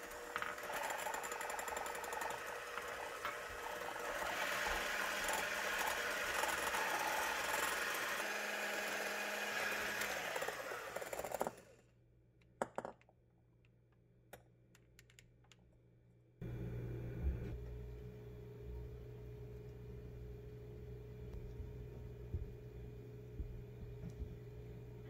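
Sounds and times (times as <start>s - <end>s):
electric hand mixer whipping: 0.0s - 11.7s
low hum: 16.4s - 25.0s.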